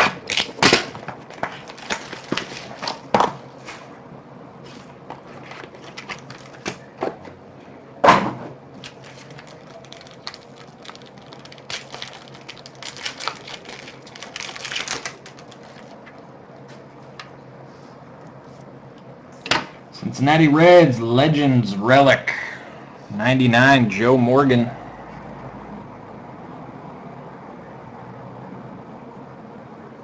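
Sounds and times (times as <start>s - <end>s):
cards being handled: 0.0s - 3.1s, 4.7s - 6.9s, 8.8s - 16.2s
foil wrapper tearing and crinkling: 0.1s - 3.0s, 5.4s - 6.8s, 8.8s - 16.2s.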